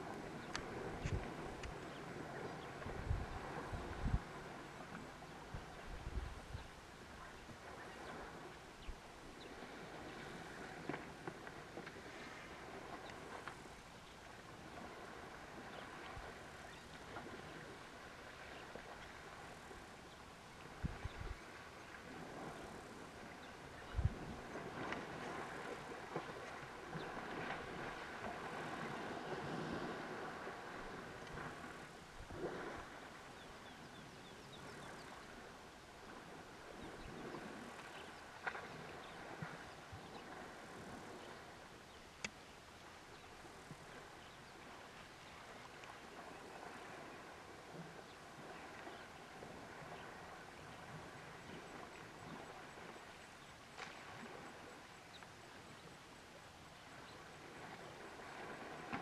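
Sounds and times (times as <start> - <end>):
elephant splashing: 21.4 - 33.4
faint outdoor hiss: 30.5 - 59.0.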